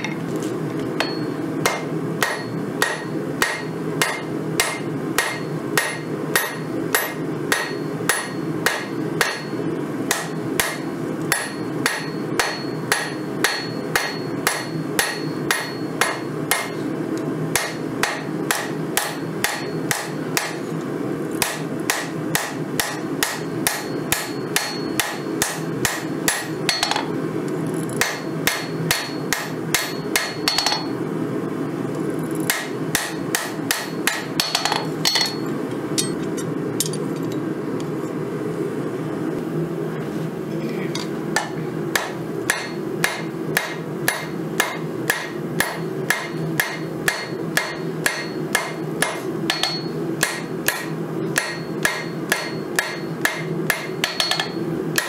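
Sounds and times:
anvil ringing: 1.0s - 16.8s, 32.5s - 35.4s, 36.0s - 36.2s, 44.1s - 54.6s
hammer blows on anvil: 1.0s - 16.8s, 41.4s - 55.0s.

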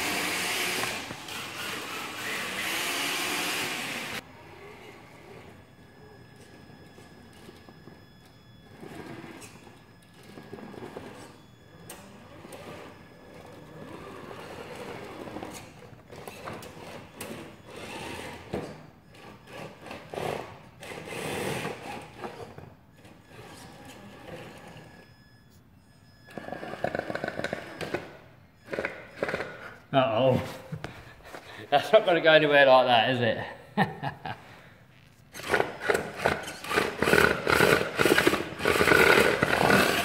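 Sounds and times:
toy car electric motor whirring: 0.0s - 6.6s, 8.8s - 25.0s, 35.3s - 40.0s.

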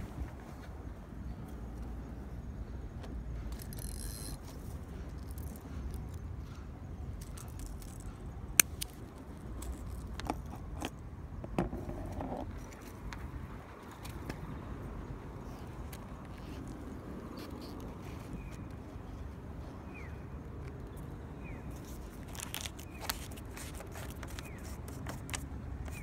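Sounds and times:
metallic clicks of fishing tackle: 3.5s - 6.2s.

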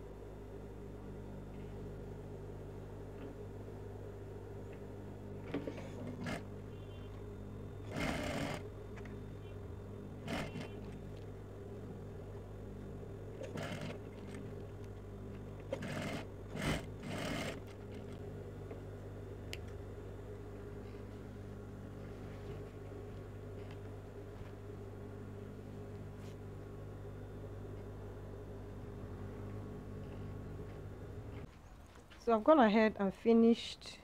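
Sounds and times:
steady low hum: 0.0s - 34.0s
sewing machine stitching: 5.5s - 6.9s, 7.8s - 8.7s, 10.2s - 11.2s, 13.3s - 14.6s, 15.6s - 18.2s.

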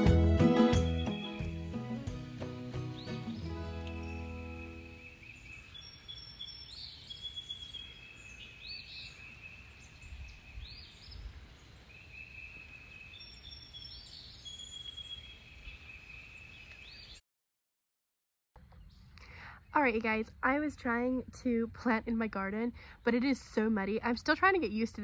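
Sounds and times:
background music: 0.0s - 5.1s
birds singing whistled notes: 0.7s - 1.9s, 2.7s - 17.2s.

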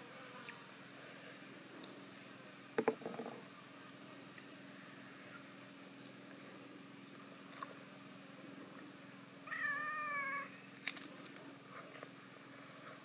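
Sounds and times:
cat meowing: 9.5s - 10.6s.

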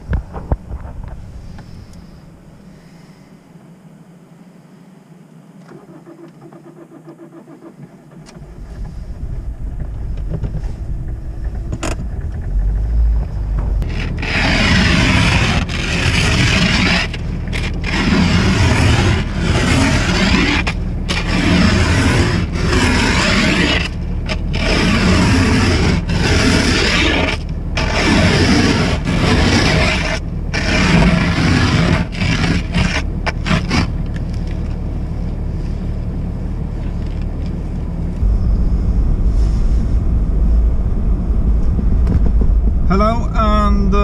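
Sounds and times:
car engine rumbling: 0.0s - 44.0s
snow scraper on windshield: 13.8s - 34.5s.

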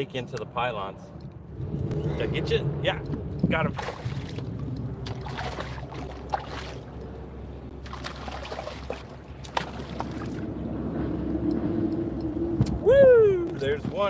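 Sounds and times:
water sloshing against kayak hull: 7.8s - 10.5s.

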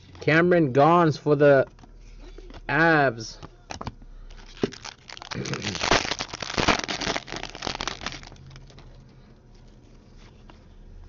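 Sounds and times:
foil wrapper tearing and crinkling: 4.3s - 8.8s.

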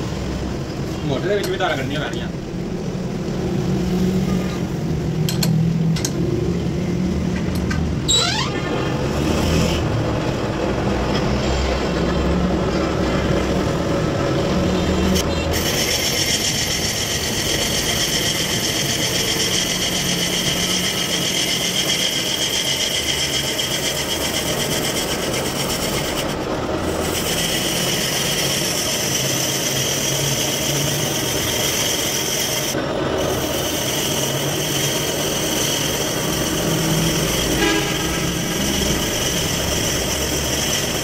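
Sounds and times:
metal lathe running: 4.7s - 41.0s
cutting tool on metal: 8.9s - 10.0s, 14.8s - 41.0s.

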